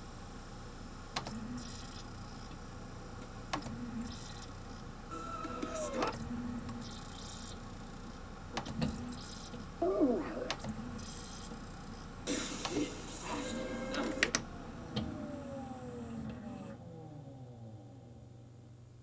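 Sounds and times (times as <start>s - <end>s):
disc player whirring and squeaking: 0.9s - 19.0s
falling tones of disc spinning down: 12.3s - 18.8s.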